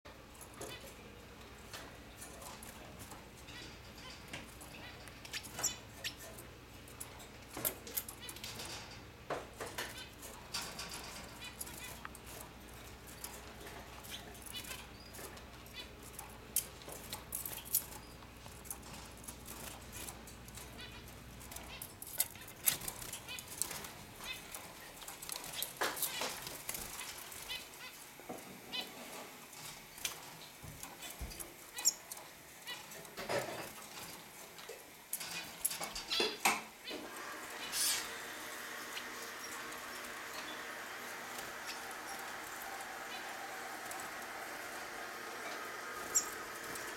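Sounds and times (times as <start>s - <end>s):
birds clicking on wire cages: 0.2s - 28.0s, 29.6s - 46.9s
finches chirping: 3.4s - 6.4s, 30.4s - 32.1s, 35.3s - 46.9s
wings fluttering: 36.9s - 46.9s.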